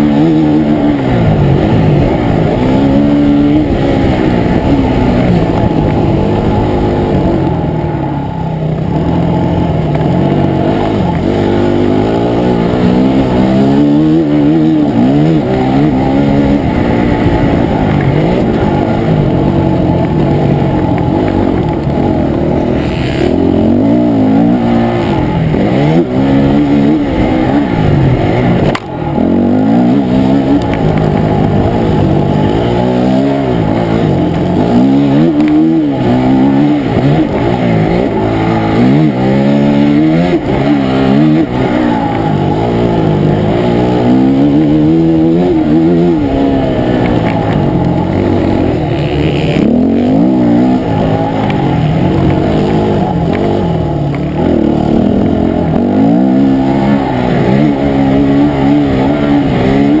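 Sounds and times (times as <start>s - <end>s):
dirt bike engine revving: 0.0s - 60.0s.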